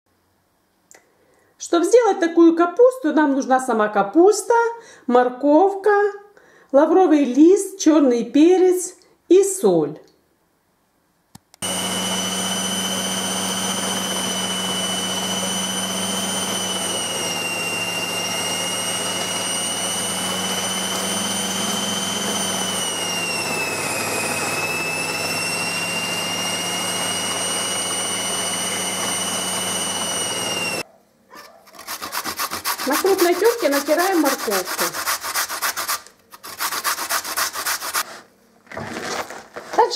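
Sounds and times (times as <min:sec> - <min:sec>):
food processor motor whining: 0:11.6 - 0:30.8, 0:32.6 - 0:35.2.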